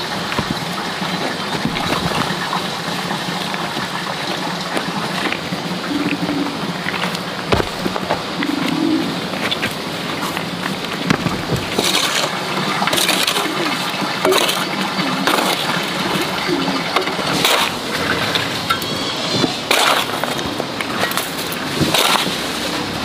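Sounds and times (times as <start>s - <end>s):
earth clods crumbling: 0.0s - 18.6s, 19.5s - 23.0s
digging tool striking rocky earth: 7.5s - 8.3s, 17.2s - 17.8s, 19.4s - 20.5s, 21.1s - 22.4s.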